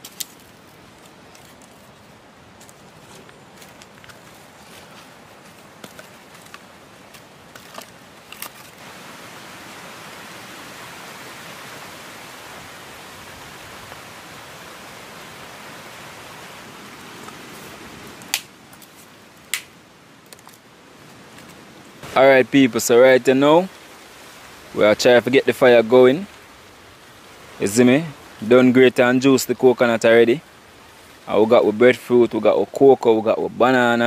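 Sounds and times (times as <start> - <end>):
firewood sticks clicking: 0.0 - 2.0, 2.6 - 8.8, 18.2 - 20.7
steady hiss: 0.0 - 34.0.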